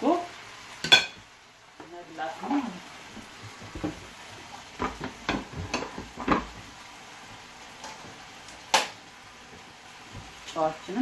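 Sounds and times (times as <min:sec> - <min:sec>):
faint sizzling in frying pan: 0:00.0 - 0:11.0
utensils and cookware clinking: 0:00.8 - 0:01.2, 0:04.8 - 0:06.5.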